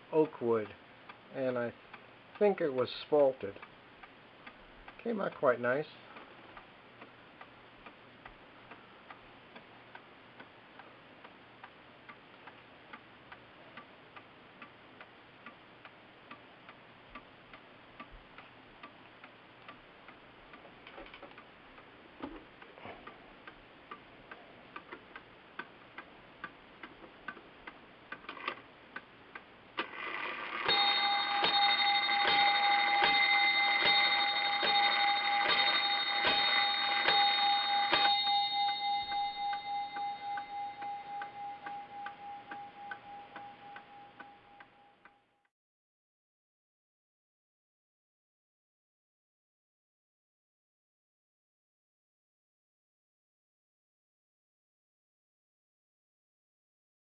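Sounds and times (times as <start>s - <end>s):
clock ticking: 0.0s - 45.2s
clock striking the hour: 14.2s - 45.2s.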